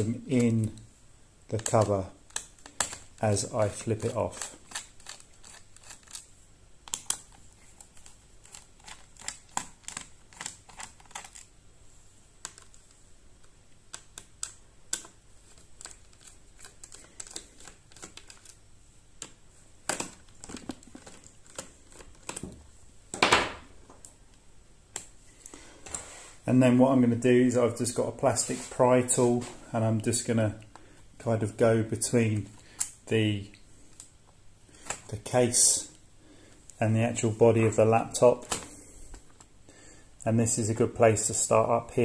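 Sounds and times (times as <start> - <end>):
brief scraping noise: 25.9 - 26.4.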